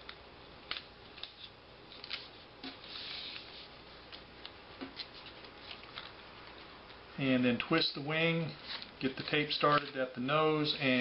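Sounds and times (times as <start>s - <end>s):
paper crinkling and tapping: 0.7s - 3.5s, 4.1s - 6.7s
paper rustling: 0.7s - 6.7s, 8.5s - 10.1s.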